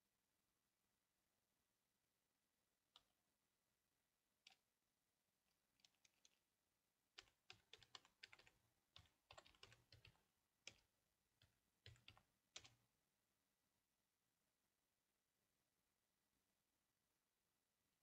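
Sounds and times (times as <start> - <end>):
computer keyboard typing: 5.8 - 6.4, 7.1 - 12.8.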